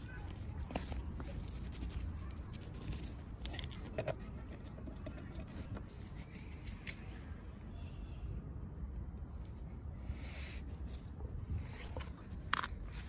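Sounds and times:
metallic clinks of engine parts: 3.4 - 4.2.

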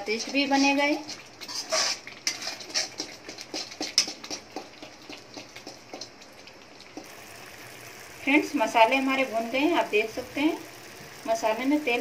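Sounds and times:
metal spatula scraping a pan: 0.0 - 6.1
paste frying in oil: 0.0 - 12.0.

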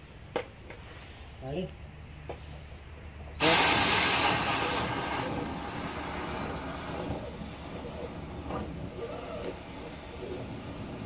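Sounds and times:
compressed air hissing through hose: 3.4 - 11.0.

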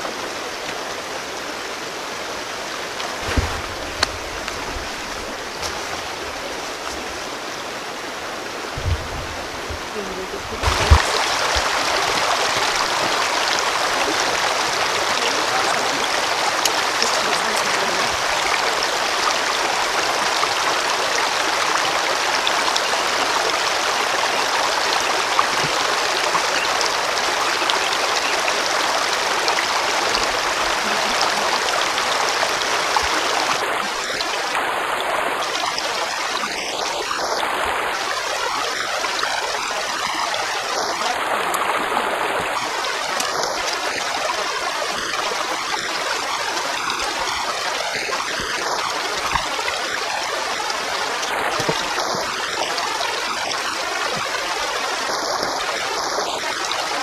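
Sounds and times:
river water over stones: 0.0 - 57.0.

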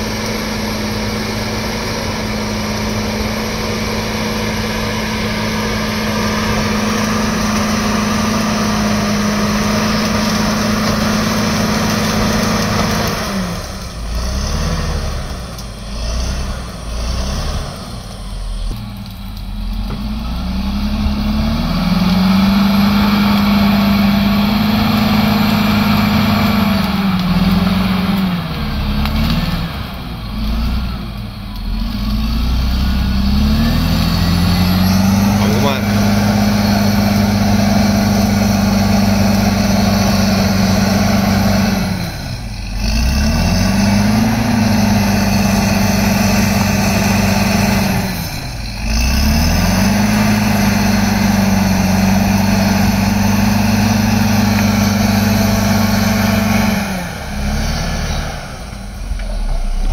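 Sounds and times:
blade pushing through brush and soil: 0.0 - 20.7
bulldozer diesel engine under load: 0.0 - 59.9.

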